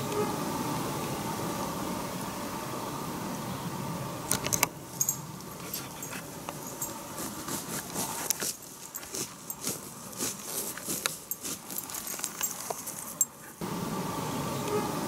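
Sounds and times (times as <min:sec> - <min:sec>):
woodland background hiss: 0:00.0 - 0:15.0
sharp clicks and rustles: 0:04.3 - 0:13.4.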